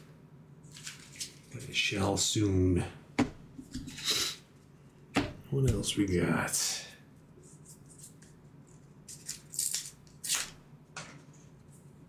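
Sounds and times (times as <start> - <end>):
cards and paper rustling: 0.7 - 1.7.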